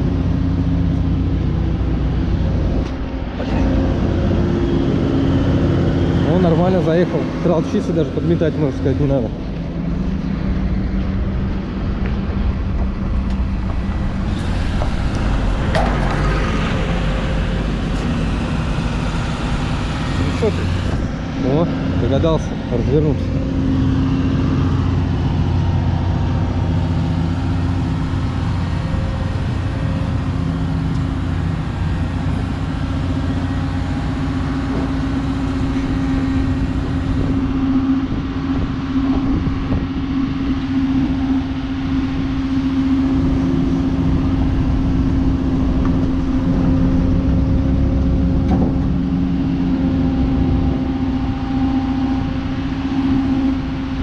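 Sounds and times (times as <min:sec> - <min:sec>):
truck diesel engine droning: 0:00.0 - 0:54.0.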